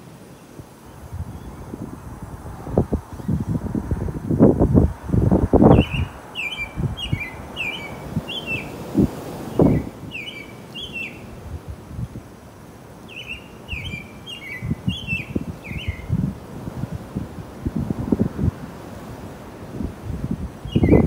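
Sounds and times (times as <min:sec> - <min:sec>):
wind gusts on microphone: 0:00.0 - 0:21.0
cardinal singing whistled notes: 0:05.7 - 0:08.8, 0:09.6 - 0:11.3, 0:13.1 - 0:16.1, 0:20.6 - 0:21.0.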